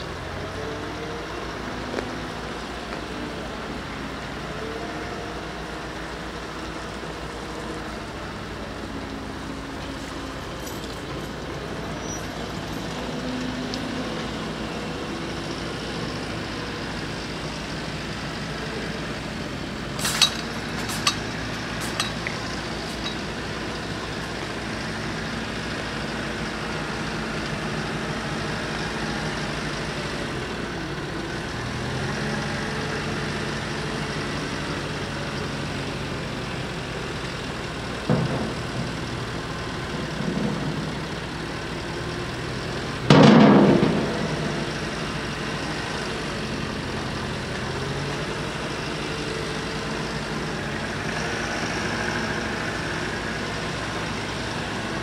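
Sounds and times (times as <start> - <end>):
vehicle engine and traffic: 0.0 - 55.0
sharp clicks and knocks: 20.0 - 23.2.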